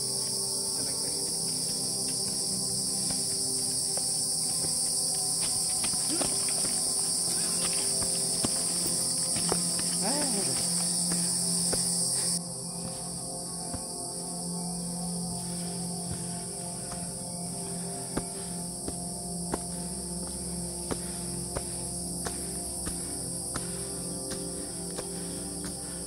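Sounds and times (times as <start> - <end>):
insects buzzing shrilly: 0.0 - 26.0.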